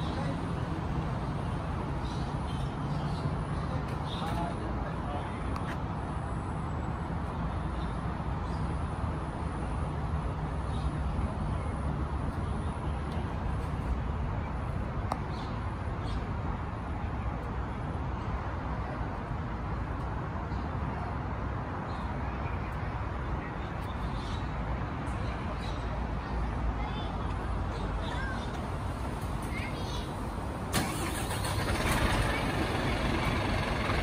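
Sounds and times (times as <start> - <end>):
diesel engines idling: 27.7 - 34.0.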